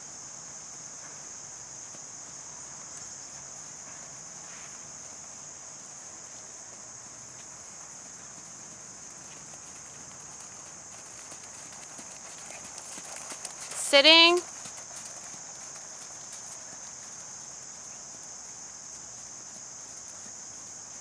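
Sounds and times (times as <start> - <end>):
high-pitched insect chorus: 0.0 - 21.0
horse hoofbeats on sand: 5.0 - 21.0.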